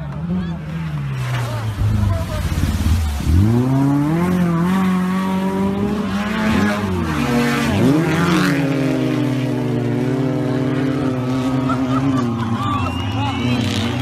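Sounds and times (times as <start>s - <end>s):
engine revving hard: 1.6s - 11.9s.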